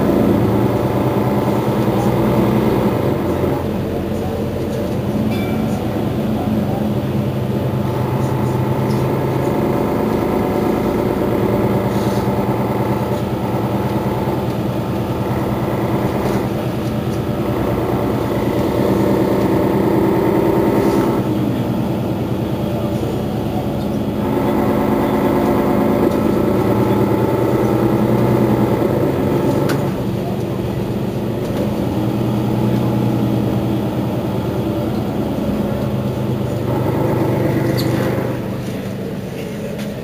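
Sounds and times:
bus engine idling: 0.0 - 40.0.

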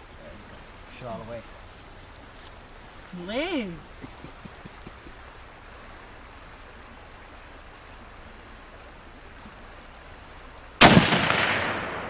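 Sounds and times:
steady low hiss: 0.0 - 12.0
rifle shot ringing: 10.8 - 12.0.

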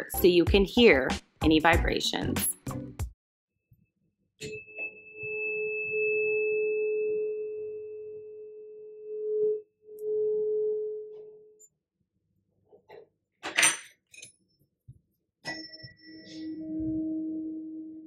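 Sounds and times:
tuning fork ringing: 4.4 - 11.6, 15.5 - 18.0.

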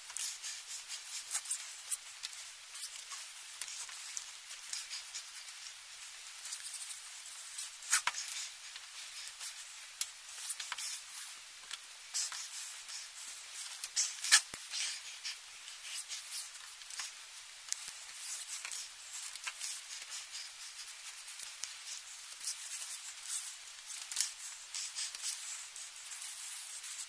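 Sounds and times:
laces sliding through grommets: 12.1 - 27.0.

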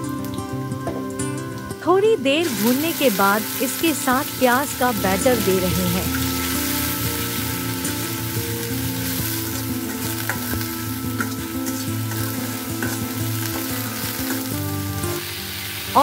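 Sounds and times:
onion paste sizzling in oil: 2.4 - 16.0
metal spatula scraping pan: 9.1 - 15.2.

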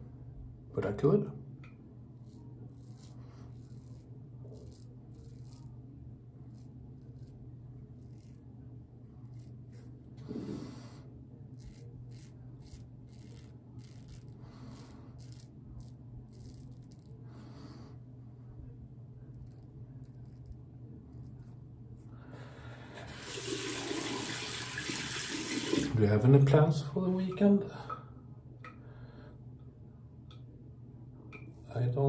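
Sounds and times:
low steady hum: 0.0 - 32.0
razor scraping stubble: 2.2 - 5.8, 6.4 - 8.5, 9.1 - 10.9, 11.5 - 17.2, 19.3 - 22.1.

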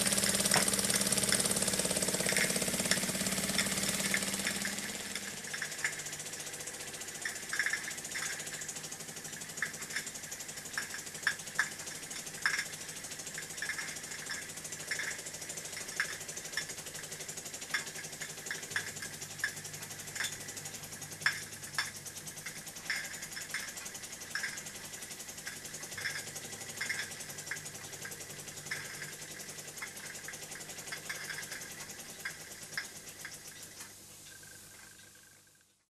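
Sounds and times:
sharp metallic clicks: 0.0 - 35.2
toy steam engine ticking: 0.0 - 35.6.

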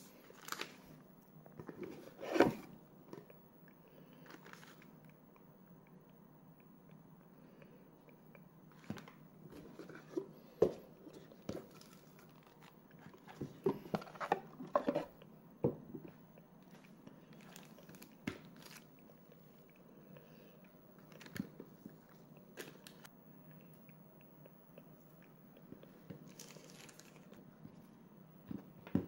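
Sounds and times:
plastic bags crinkling: 17.3 - 18.9, 26.2 - 27.4.

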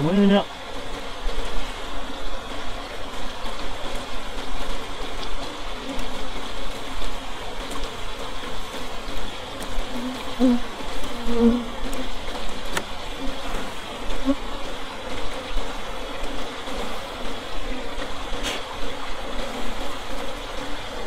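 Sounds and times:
bees buzzing: 0.2 - 21.0.

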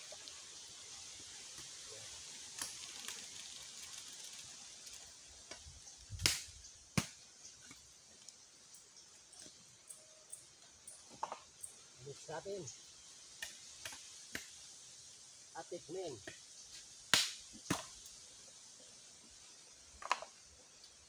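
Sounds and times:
wood fire hissing: 0.0 - 21.0
fire crackling and knocking: 1.4 - 8.3.

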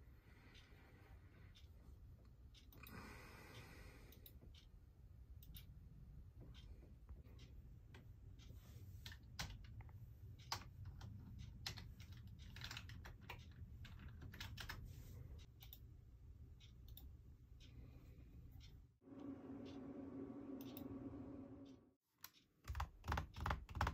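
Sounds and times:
low steady hum: 0.0 - 22.0
keyboard typing: 10.4 - 14.8, 22.2 - 23.9.

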